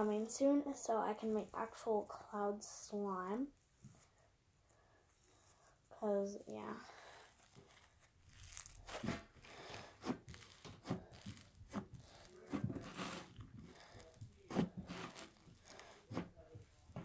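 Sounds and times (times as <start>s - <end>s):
slime squeezed crackling: 7.4s - 16.0s.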